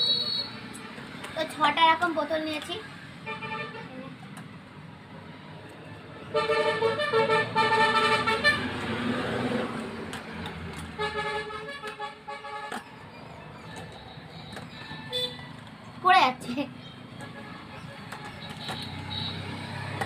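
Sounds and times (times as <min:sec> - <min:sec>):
vehicle horn honking: 0:00.0 - 0:00.6, 0:03.2 - 0:03.9, 0:06.3 - 0:08.8, 0:11.0 - 0:12.8, 0:15.1 - 0:15.5, 0:17.2 - 0:19.6
passing traffic hum: 0:00.0 - 0:20.0.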